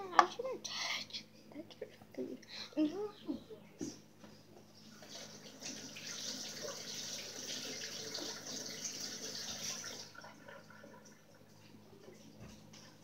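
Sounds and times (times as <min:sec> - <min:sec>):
faucet running into sink: 0:05.0 - 0:11.5.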